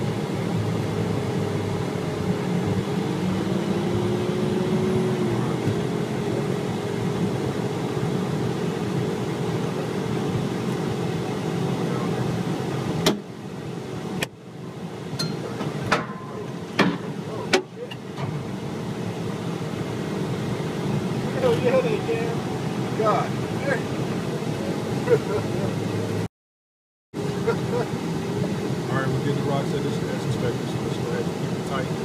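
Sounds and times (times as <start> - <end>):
vehicle engine and road noise: 0.0 - 26.3, 27.2 - 32.0.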